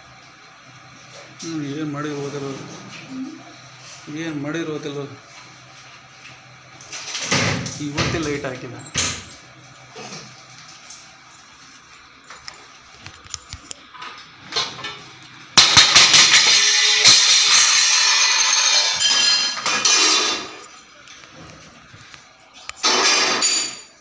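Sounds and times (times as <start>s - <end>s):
metal pots and plates clattering: 15.6s - 20.6s
metal utensils clinking: 15.6s - 20.8s.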